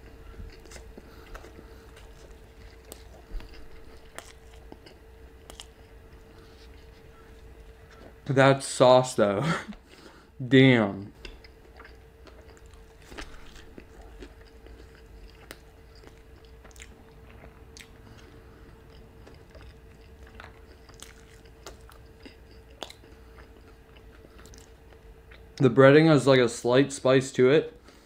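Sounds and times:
mouth chewing sounds: 0:00.0 - 0:08.3, 0:11.1 - 0:25.6
soft crunches of breading: 0:11.5 - 0:25.0.

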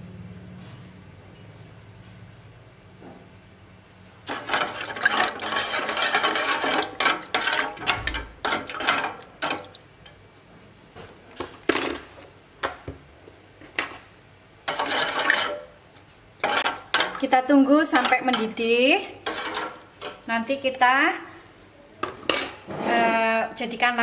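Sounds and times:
spoon scraping a metal saucepan: 0:04.2 - 0:09.8, 0:14.6 - 0:15.8, 0:16.4 - 0:17.2, 0:19.2 - 0:20.2.

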